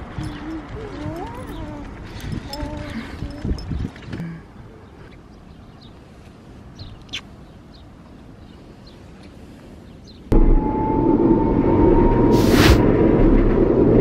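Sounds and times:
transit vehicle interior rumble: 0.0s - 5.5s, 10.3s - 14.0s
bird chirps: 6.8s - 9.0s.

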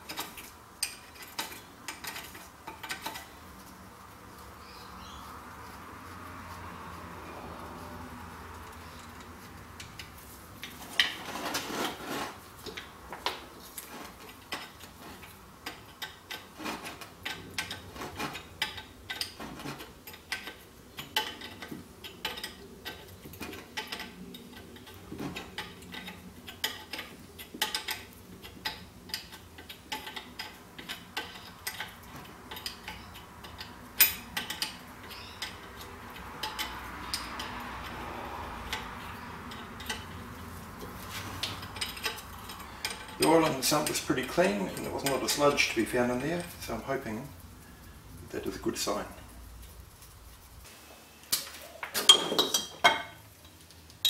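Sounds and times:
hand tools clicking on metal: 0.0s - 3.6s, 8.4s - 47.2s.

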